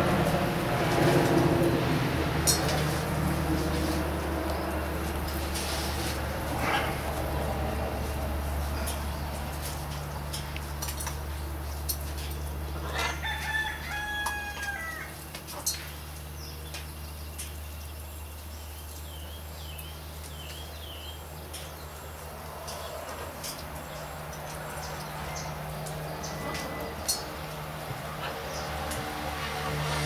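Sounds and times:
rooster crowing: 12.9s - 15.2s.

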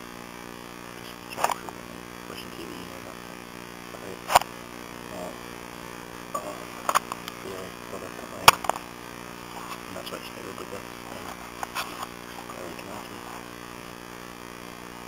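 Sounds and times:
electrical mains hum: 0.0s - 15.0s
sharp clicks: 8.4s - 8.8s.

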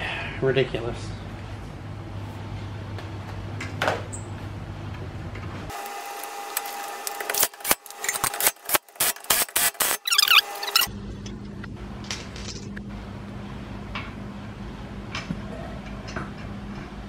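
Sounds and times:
impact wrench whirring and hammering: 5.7s - 10.9s.

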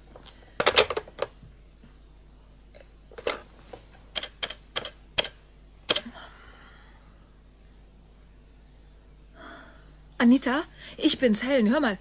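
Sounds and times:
telephone dial clicks: 4.2s - 6.0s.

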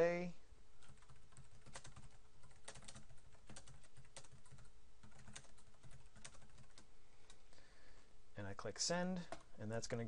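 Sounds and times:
computer keyboard typing: 0.8s - 7.4s.

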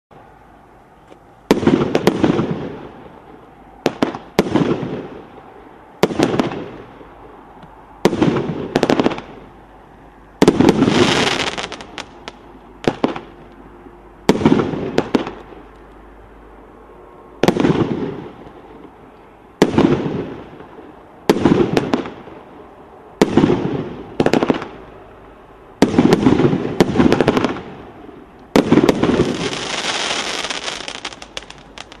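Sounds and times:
firework crackling tail: 10.4s - 13.4s, 17.4s - 22.6s, 25.8s - 32.0s.

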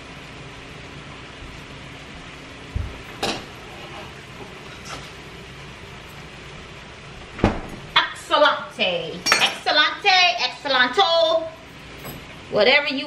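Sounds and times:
woman speaking: 8.0s - 11.6s, 12.5s - 13.0s.

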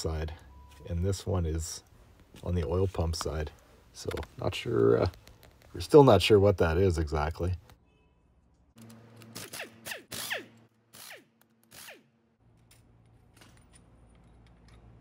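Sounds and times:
air wrench bursts: 9.2s - 12.2s.

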